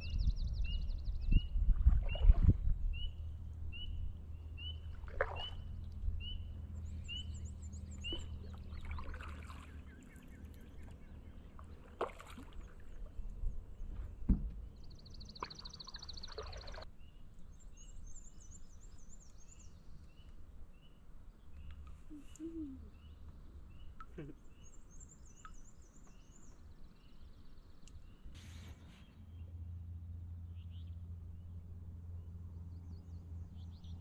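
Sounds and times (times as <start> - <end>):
bird chirping: 0.0 - 12.0, 12.6 - 34.0
birds trilling songs: 0.0 - 34.0
paddle strokes and drips: 1.7 - 2.6, 4.7 - 16.9, 27.8 - 29.2.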